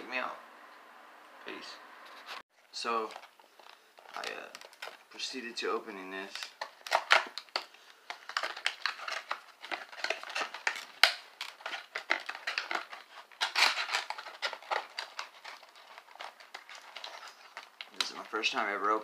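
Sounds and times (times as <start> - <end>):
cardboard box tearing: 8.3 - 17.7.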